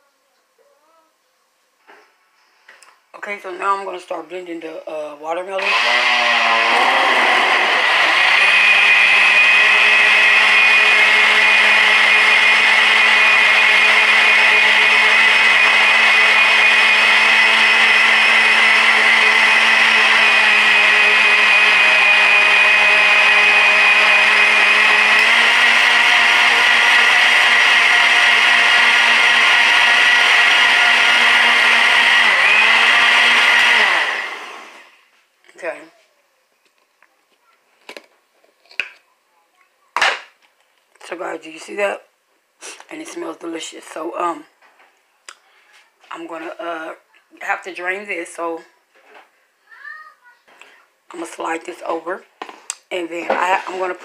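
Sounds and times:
electric blender running: 0:05.5 - 0:35.0.

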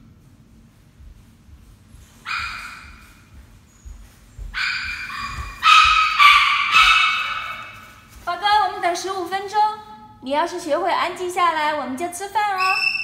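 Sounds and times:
dog yelping and whining: 0:04.6 - 0:07.6.

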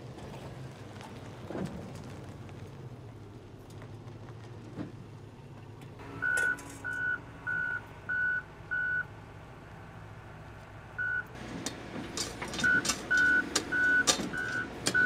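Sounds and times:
heavy equipment engine humming: 0:00.0 - 0:15.0
reversing alarm beeps: 0:06.2 - 0:09.0, 0:11.0 - 0:11.2, 0:12.6 - 0:15.0.

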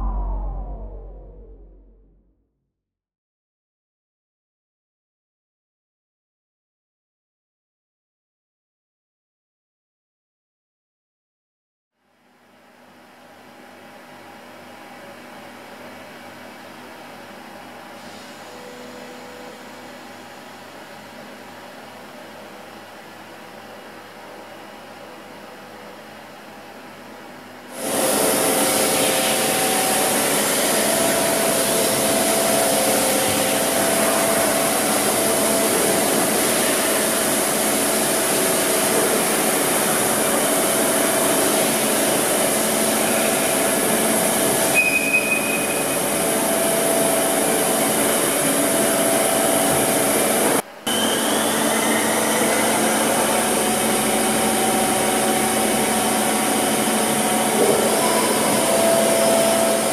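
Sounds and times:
brief higher tone: 0:00.0 - 0:02.2
faint rising whine: 0:00.0 - 0:02.3
milling machine whirring: 0:45.8 - 0:59.9.

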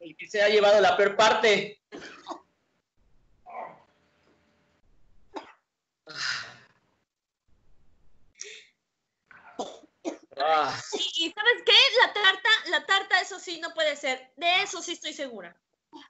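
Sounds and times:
person gagging and retching: 0:09.6 - 0:11.0.

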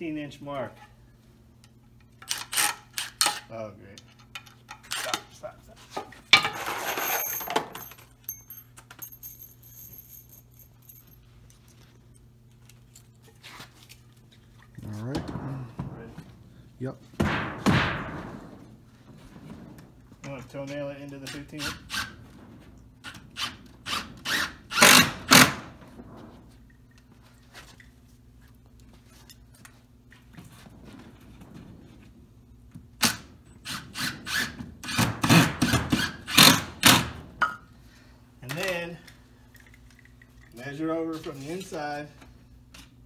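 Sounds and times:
steady low hum: 0:03.6 - 0:43.0
metal parts clinking: 0:06.4 - 0:11.2.

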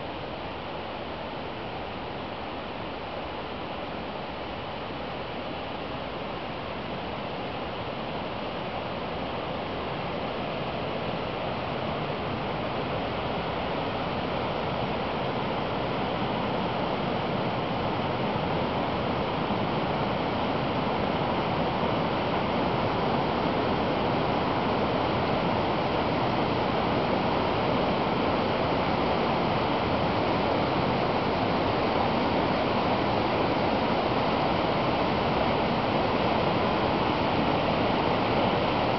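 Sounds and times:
water rushing down brook: 0:11.3 - 0:38.9.

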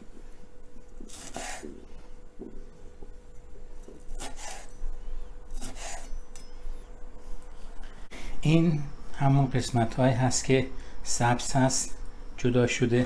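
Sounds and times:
knife scraping wooden board: 0:04.0 - 0:04.7, 0:05.5 - 0:06.2.

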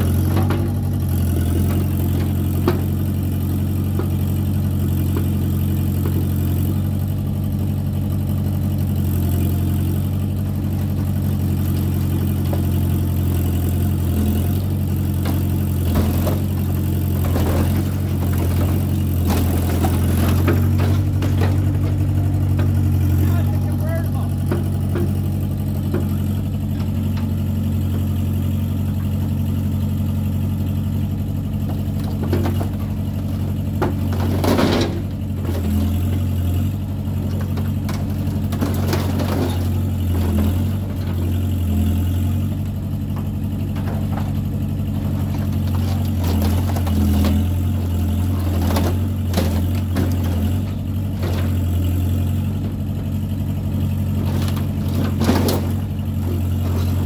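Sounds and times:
excavator diesel engine running: 0:00.0 - 0:57.0
metal body crunching: 0:14.8 - 0:27.5, 0:54.0 - 0:57.0.

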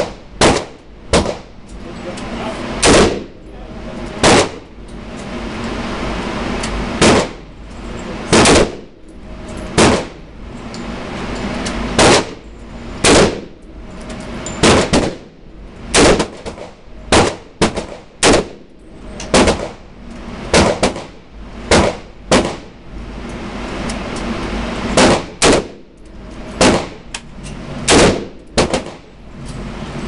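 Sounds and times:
rifle shots echoing indoors: 0:00.0 - 0:01.5, 0:02.8 - 0:03.3, 0:04.2 - 0:04.7, 0:07.0 - 0:07.4, 0:08.3 - 0:08.9, 0:12.0 - 0:12.4, 0:13.0 - 0:13.5, 0:14.6 - 0:15.3, 0:15.9 - 0:18.6, 0:19.3 - 0:19.8, 0:20.5 - 0:22.7, 0:24.9 - 0:25.8, 0:26.6 - 0:27.0, 0:27.9 - 0:29.1.

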